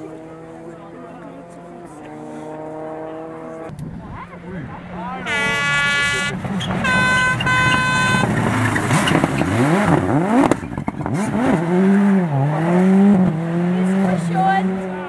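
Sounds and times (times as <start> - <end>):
car engine revving past: 0.0 - 3.7
horn blast: 5.1 - 8.4.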